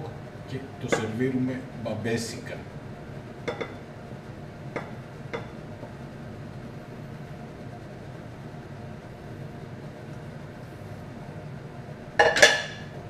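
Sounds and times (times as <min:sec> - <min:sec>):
steady low hum: 0:00.0 - 0:13.0
metal wok knocking ceramic bowl: 0:03.4 - 0:03.8, 0:12.2 - 0:12.9.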